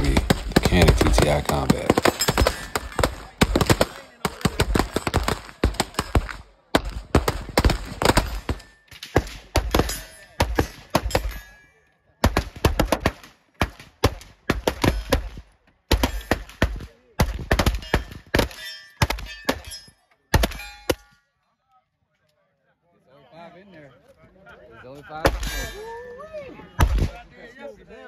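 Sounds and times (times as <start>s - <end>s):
pistol shots: 0.0s - 11.4s.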